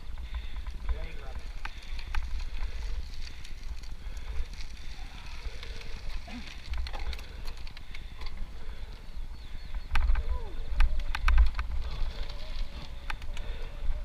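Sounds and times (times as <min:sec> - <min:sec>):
bicycle tyres crunching gravel: 0:00.0 - 0:14.0
bike clicks and rattles: 0:00.0 - 0:14.0.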